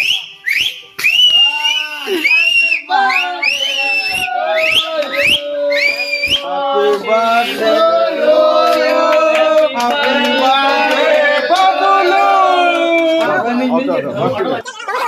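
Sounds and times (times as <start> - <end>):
sharp rising whistles: 0.0 - 6.5
men singing together: 2.8 - 13.1.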